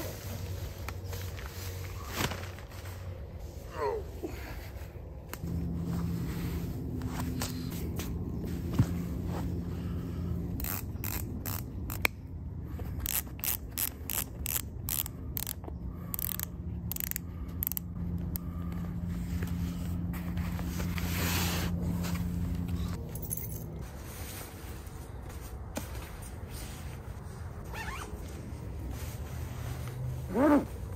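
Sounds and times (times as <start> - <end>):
shoelaces scraping: 18.2 - 30.9.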